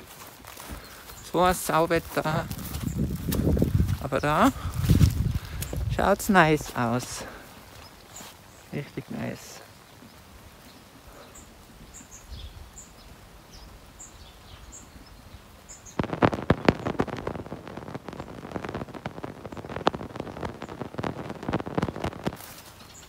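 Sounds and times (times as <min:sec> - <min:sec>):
outdoor hiss: 0:00.0 - 0:23.0.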